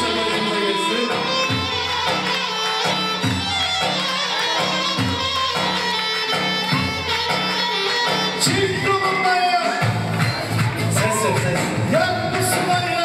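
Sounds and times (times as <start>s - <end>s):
reedy wind instrument melody: 0.0s - 9.4s.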